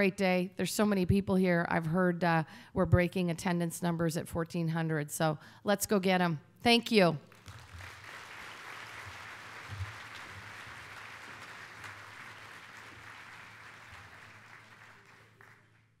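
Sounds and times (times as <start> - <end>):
audience applauding: 7.3 - 16.0.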